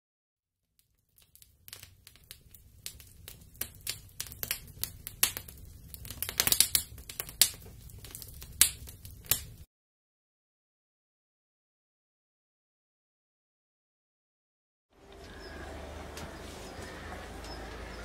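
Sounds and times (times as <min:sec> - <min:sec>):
wood fire crackling and popping: 0:00.8 - 0:09.7
low rumble of flames: 0:01.1 - 0:09.7.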